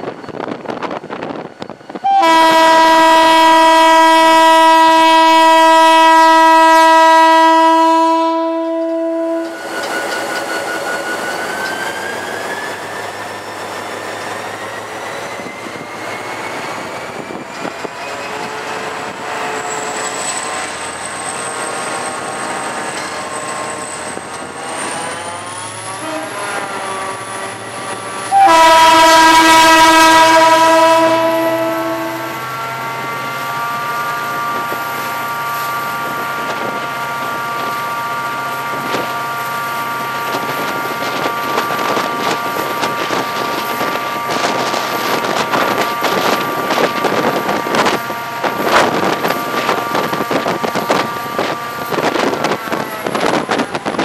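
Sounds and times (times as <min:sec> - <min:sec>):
locomotive horn blasts: 0:02.0 - 0:09.6, 0:25.9 - 0:27.2, 0:28.2 - 0:32.6.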